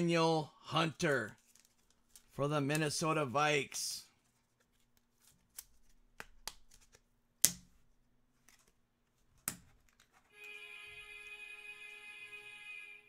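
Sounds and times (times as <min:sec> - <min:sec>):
trading cards clicking and snapping: 0:04.6 - 0:07.8, 0:09.4 - 0:10.3.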